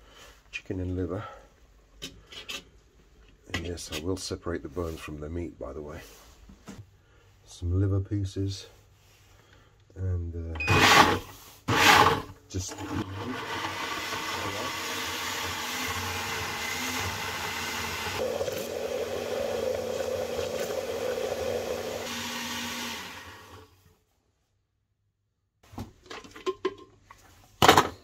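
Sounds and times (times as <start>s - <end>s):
blender running: 10.7s - 23.8s.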